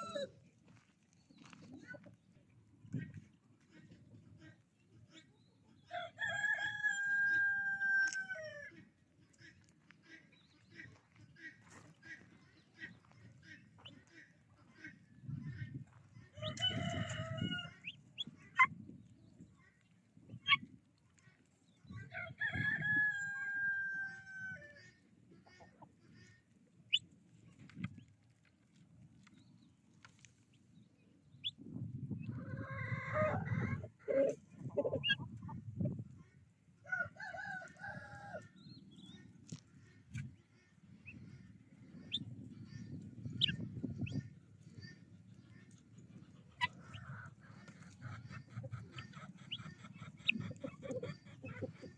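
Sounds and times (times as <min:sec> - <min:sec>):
chickens calling and clucking: 0:00.0 - 0:51.9
rooster crowing: 0:06.0 - 0:08.6, 0:16.5 - 0:17.7, 0:22.2 - 0:24.7.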